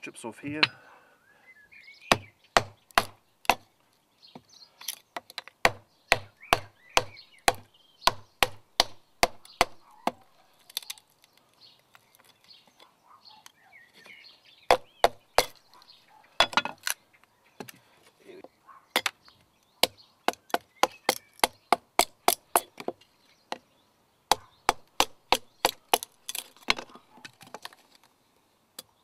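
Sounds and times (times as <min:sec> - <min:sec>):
hatchet chopping wood: 0:02.1 - 0:03.7, 0:05.2 - 0:11.0, 0:14.7 - 0:15.7, 0:16.4 - 0:16.9, 0:19.0 - 0:19.2, 0:19.8 - 0:23.6, 0:24.3 - 0:27.8.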